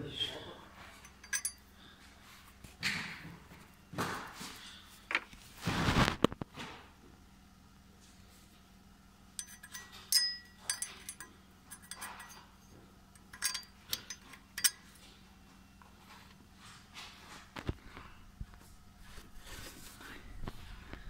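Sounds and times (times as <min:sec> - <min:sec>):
metallic clinks and taps: 0:01.0 - 0:01.7, 0:09.4 - 0:15.1.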